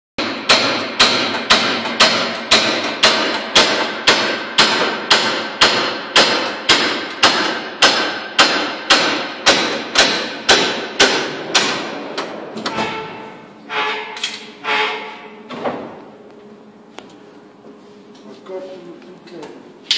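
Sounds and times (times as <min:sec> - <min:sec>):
hammer blows on wooden hull: 0:00.2 - 0:11.9.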